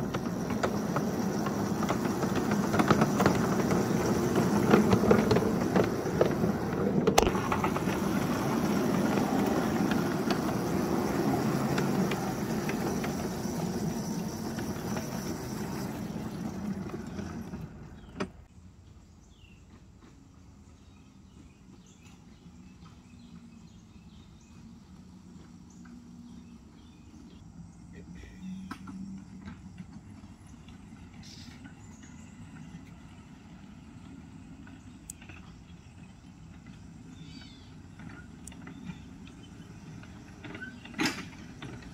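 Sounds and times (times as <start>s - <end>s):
steel wheels clattering on rails: 0.0s - 18.5s, 28.6s - 41.9s.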